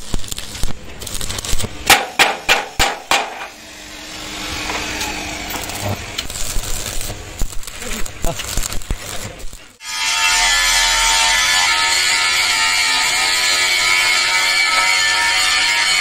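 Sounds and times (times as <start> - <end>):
arc welder crackling hiss: 0.0 - 16.0
hammer striking steel: 1.8 - 6.3, 9.8 - 16.0.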